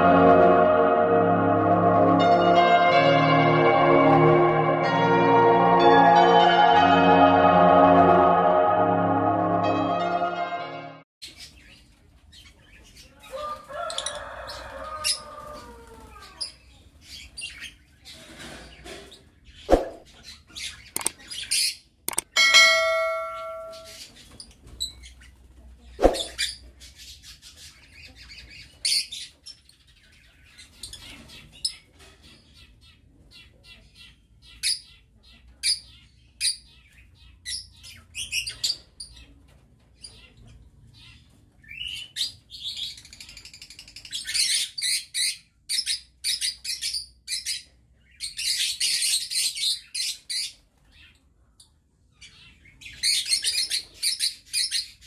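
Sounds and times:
brief ringing tone: 0:22.4 - 0:23.9.

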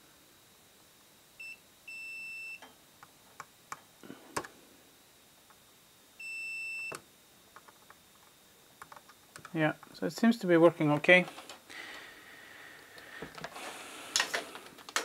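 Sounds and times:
multimeter continuity beeps: 0:01.4 - 0:02.7, 0:06.2 - 0:07.0.

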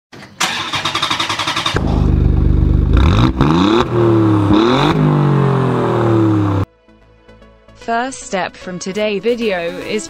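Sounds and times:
two-stroke engine revving: 0:00.4 - 0:06.7.

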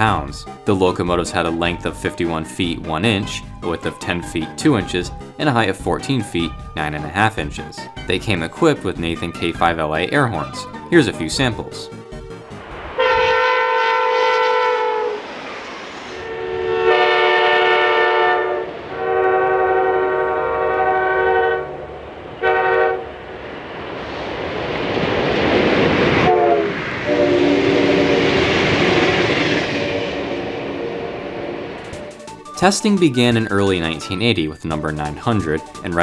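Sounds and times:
passing train rush: 0:00.0 - 0:36.0
train air horn blasts: 0:13.0 - 0:15.3, 0:16.2 - 0:21.8, 0:22.4 - 0:23.2, 0:26.2 - 0:31.8.

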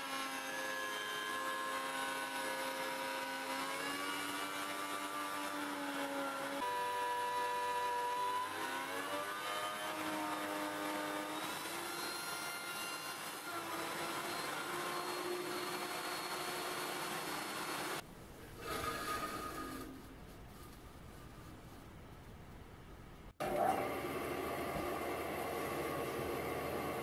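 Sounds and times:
table saw motor whine: 0:00.0 - 0:18.0, 0:23.4 - 0:27.0.

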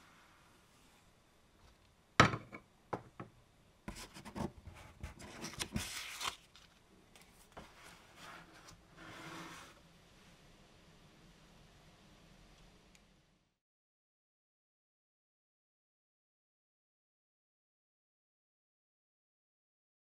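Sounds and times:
soft slide on tabletop: 0:00.0 - 0:01.1, 0:07.4 - 0:10.4.

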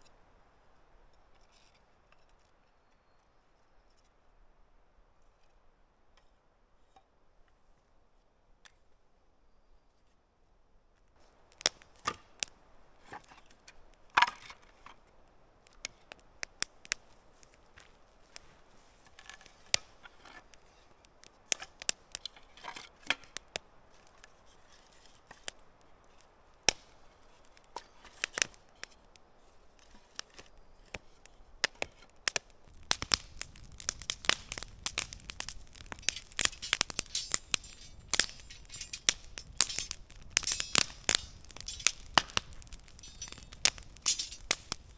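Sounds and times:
campfire crackling and popping: 0:11.2 - 0:44.9.

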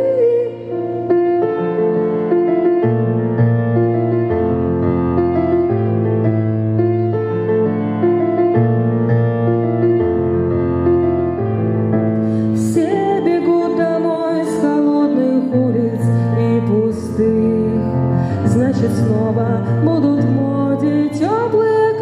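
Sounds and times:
woman singing: 0:00.0 - 0:01.3, 0:12.5 - 0:22.0
piano playing sustained chords: 0:00.0 - 0:22.0.

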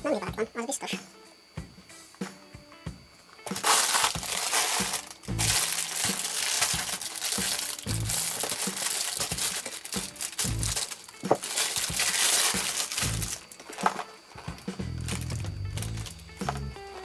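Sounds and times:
background music with low beat: 0:00.0 - 0:17.0
plastic packaging crinkling: 0:03.4 - 0:17.0
scissors cutting plastic: 0:03.5 - 0:17.0.

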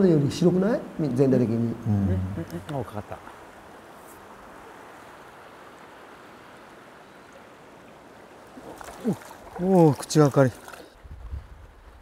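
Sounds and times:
river water flowing over stones: 0:02.3 - 0:11.0.

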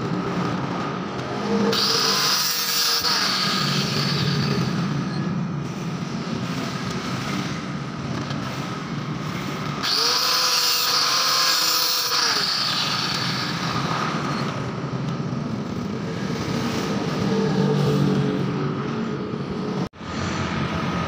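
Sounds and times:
angle grinder cutting: 0:01.4 - 0:05.1, 0:09.8 - 0:14.5.

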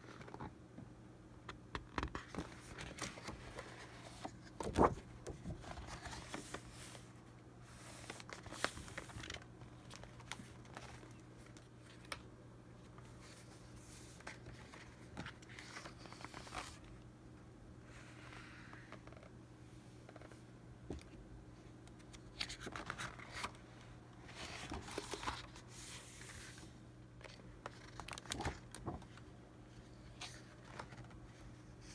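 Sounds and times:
faint steady hum: 0:00.0 - 0:31.9
paper rustling and crinkling: 0:01.9 - 0:16.9, 0:21.9 - 0:29.3, 0:30.0 - 0:31.9.

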